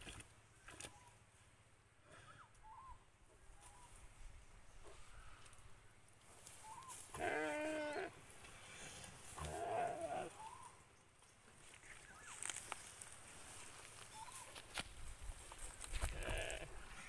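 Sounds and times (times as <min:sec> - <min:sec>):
deer bleating in distress: 0:07.1 - 0:08.2, 0:09.4 - 0:10.4, 0:16.1 - 0:16.8.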